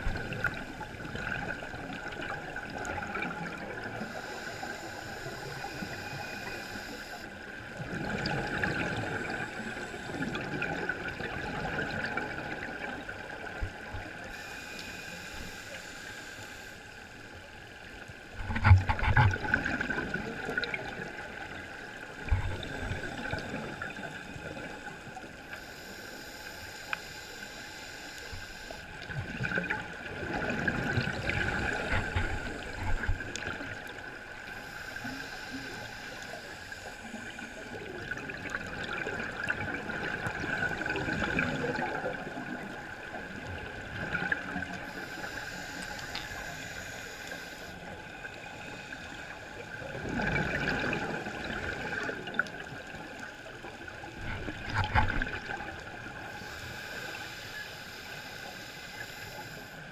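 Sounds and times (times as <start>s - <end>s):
bubbling exhaust underwater: 0.0s - 16.7s, 18.3s - 59.9s
scuba regulator inhale hiss: 4.0s - 7.4s, 14.3s - 17.3s, 25.4s - 28.9s, 34.5s - 37.8s, 44.8s - 49.6s, 56.2s - 59.9s.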